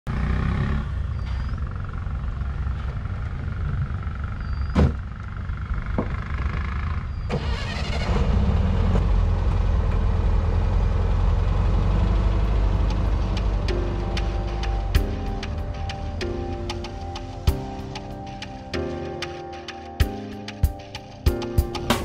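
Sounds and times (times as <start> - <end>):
car engine running: 1.0 - 17.6.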